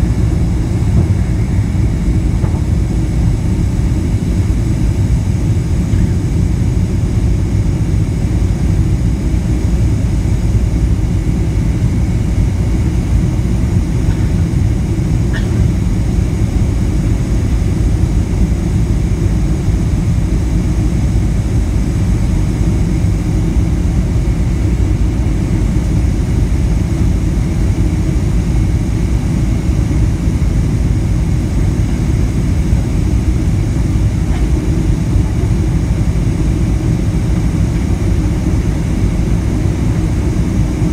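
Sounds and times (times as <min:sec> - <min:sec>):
jet engines roaring: 0:00.0 - 0:19.7, 0:29.9 - 0:40.9.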